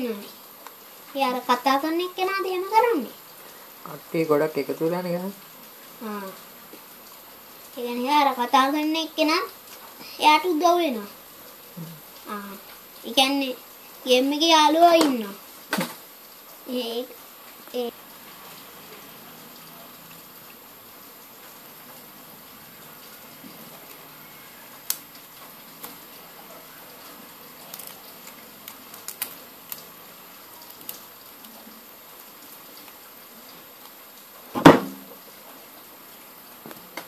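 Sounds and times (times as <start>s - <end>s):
background hiss: 0.0s - 37.0s
loud knock: 34.6s - 35.1s.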